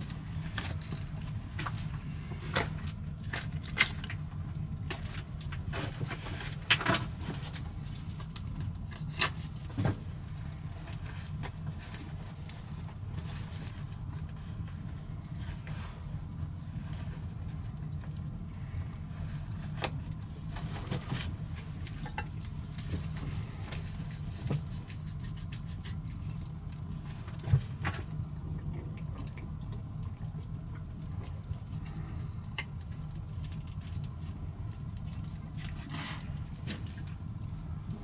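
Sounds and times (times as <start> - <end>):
low fire rumble: 0.0 - 38.0
wood fire crackling and popping: 0.0 - 38.0.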